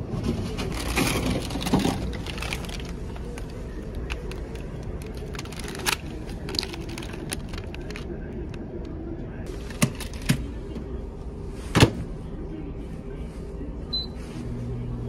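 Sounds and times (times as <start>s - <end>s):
steady low rumble: 0.0s - 15.0s
plastic packaging crinkling: 0.6s - 8.1s.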